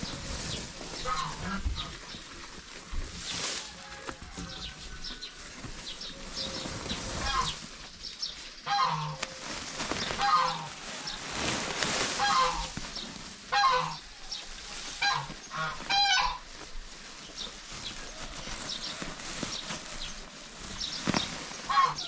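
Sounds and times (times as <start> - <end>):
grass and sacking rustling: 0.0 - 22.0
geese honking: 1.0 - 2.0, 7.2 - 7.6, 8.6 - 9.4, 10.2 - 11.1, 12.1 - 12.8, 13.5 - 14.1, 15.0 - 16.5, 21.6 - 22.0.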